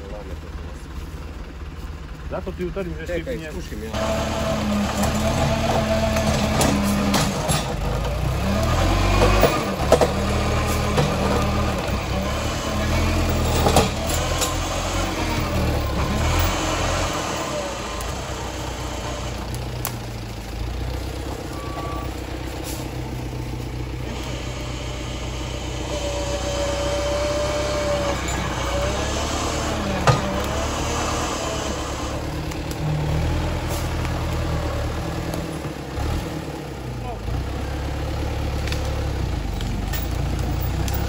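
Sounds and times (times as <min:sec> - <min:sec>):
diesel engine running: 0:00.0 - 0:41.0.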